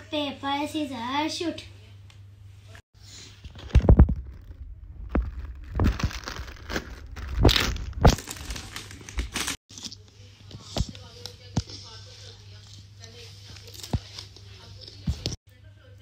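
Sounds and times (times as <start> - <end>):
foil packet crinkling and tearing: 3.6 - 9.6.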